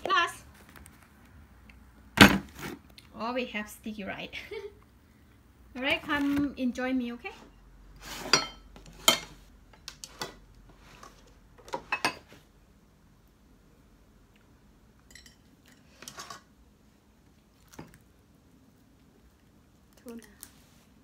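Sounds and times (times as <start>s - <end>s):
dishes and spoon clinking: 8.2s - 9.4s, 11.6s - 12.4s, 15.0s - 16.5s.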